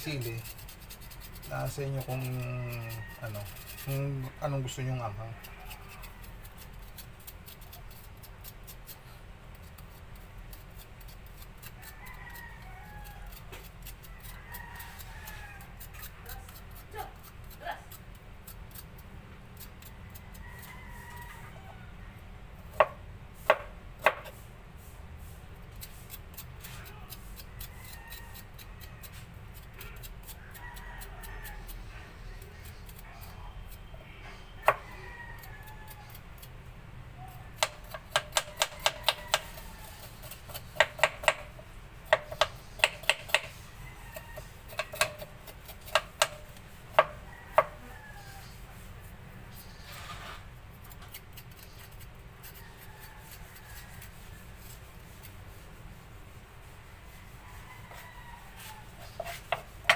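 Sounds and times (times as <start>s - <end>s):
knife chopping on cutting board: 22.7s - 24.4s, 37.6s - 39.6s, 40.2s - 41.5s, 42.1s - 43.5s, 44.7s - 47.8s, 59.2s - 59.9s.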